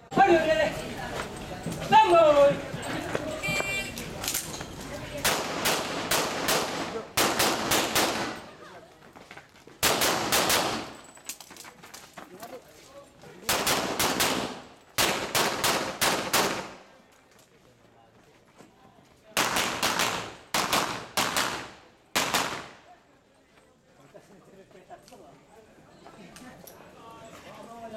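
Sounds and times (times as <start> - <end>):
pistol gunshots: 5.2 - 8.4, 9.8 - 11.0, 13.5 - 16.8, 19.4 - 22.8.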